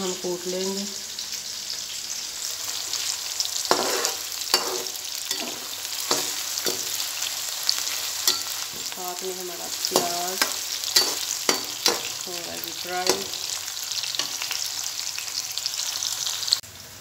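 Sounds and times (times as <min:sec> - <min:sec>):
onions sizzling in hot oil: 0:00.0 - 0:17.0
metal spoon scraping pan: 0:02.8 - 0:14.6.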